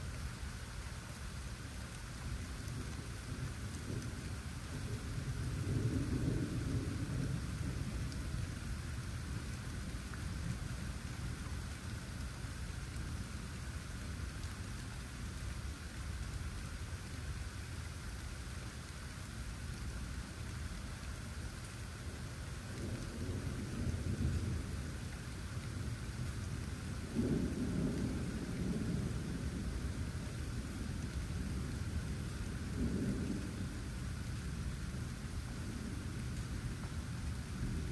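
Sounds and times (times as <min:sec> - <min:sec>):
steady rain: 0:00.0 - 0:37.9
low rolling thunder: 0:02.7 - 0:11.4, 0:22.6 - 0:37.9.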